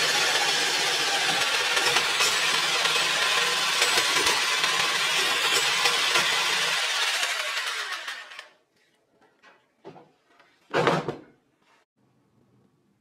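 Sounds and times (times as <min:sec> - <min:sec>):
jigsaw cutting steel tube: 0:00.0 - 0:08.6.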